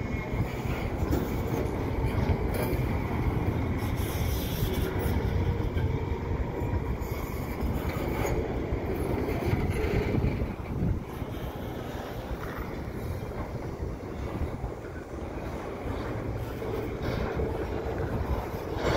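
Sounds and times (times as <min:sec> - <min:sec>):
train wheels rumbling on track: 0:00.0 - 0:18.9.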